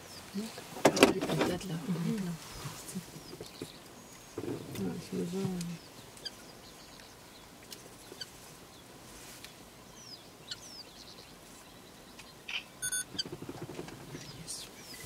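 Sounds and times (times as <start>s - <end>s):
faint outdoor ambience: 0.0s - 15.0s
birds chirping and whistling: 9.9s - 15.0s.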